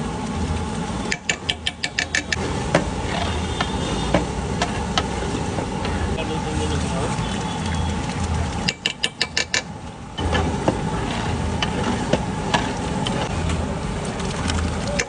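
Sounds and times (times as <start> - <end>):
steady low hum: 9.6 - 15.0.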